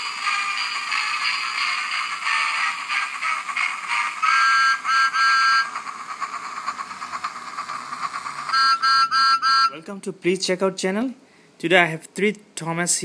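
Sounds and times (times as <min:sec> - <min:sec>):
steam train chuffing: 0:00.0 - 0:09.7
steam train whistle toots: 0:03.3 - 0:05.8, 0:08.5 - 0:09.8.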